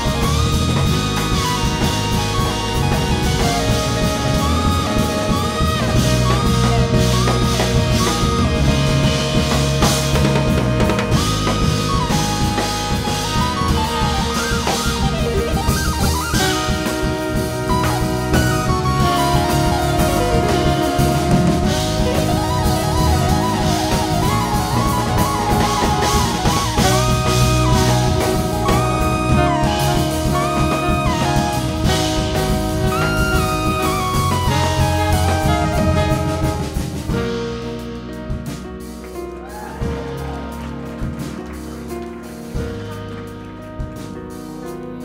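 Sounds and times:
drum kit: 0.0s - 45.0s
horns playing jazz melody: 0.0s - 45.0s
rhythm section: 0.0s - 45.0s.

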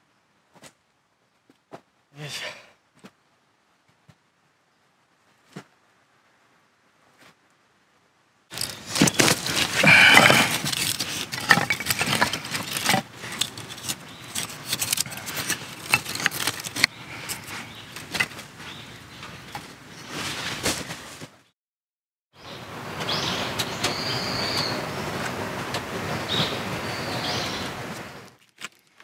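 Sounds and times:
kindling sticks clattering: 8.5s - 19.8s.

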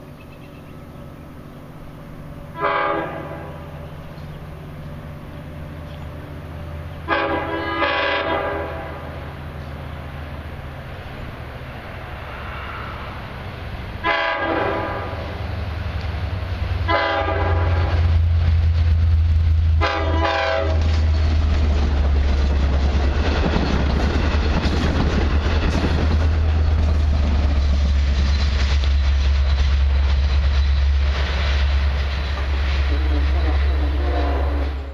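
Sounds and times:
diesel locomotive rumble: 0.0s - 34.9s
train cars running noise: 0.0s - 34.9s
train horn blasts: 2.5s - 3.8s, 6.8s - 9.2s, 14.0s - 15.4s, 16.8s - 18.2s, 19.8s - 21.0s, 32.7s - 34.9s.

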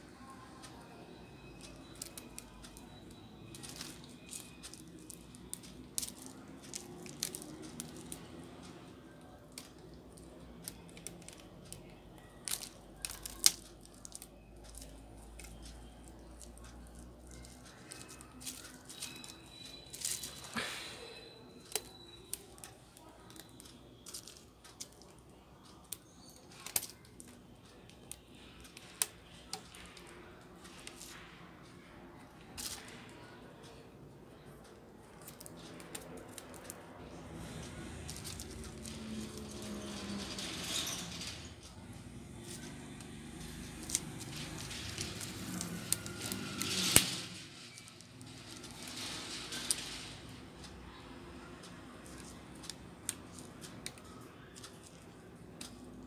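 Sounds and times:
handling rustle: 3.5s - 8.3s, 12.4s - 20.9s.

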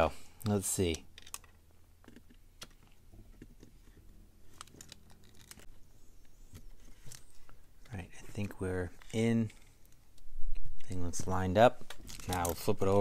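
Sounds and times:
small plastic parts clicking: 0.9s - 3.8s.

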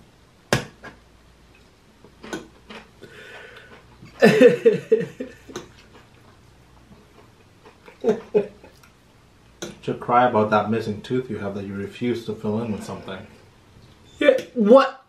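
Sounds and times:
man crying and sobbing: 4.2s - 5.4s.

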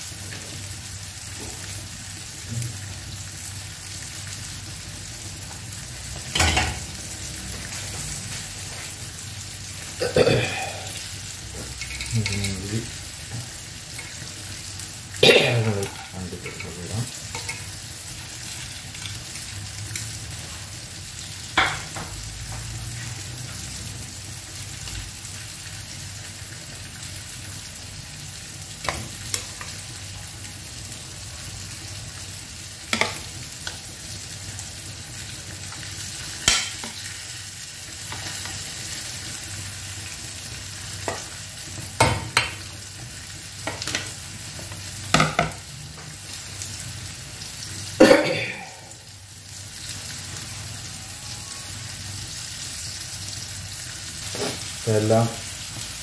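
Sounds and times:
sizzling hiss: 0.0s - 56.0s.

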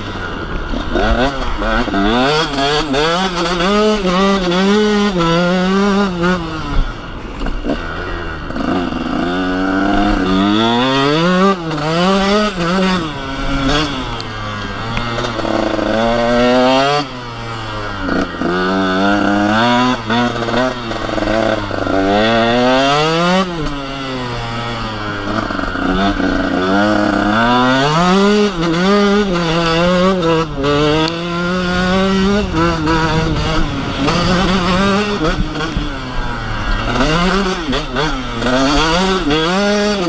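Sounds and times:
motorcycle engine revving: 0.0s - 40.0s.

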